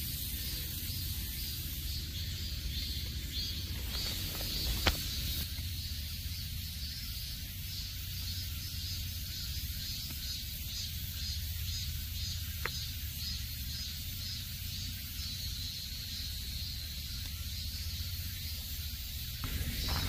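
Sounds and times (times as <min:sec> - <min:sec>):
insects buzzing trill chorus: 0:00.0 - 0:20.0
low rumble: 0:19.4 - 0:20.0.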